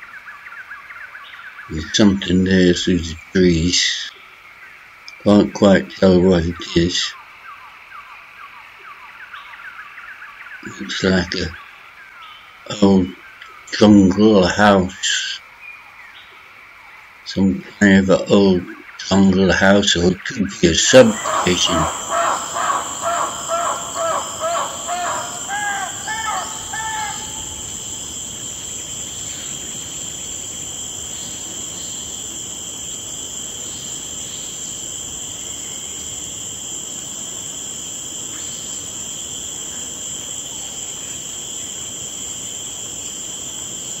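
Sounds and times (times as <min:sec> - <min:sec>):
high drone of insects: 0:00.0 - 0:44.0
rapid repeated animal calls: 0:20.9 - 0:44.0.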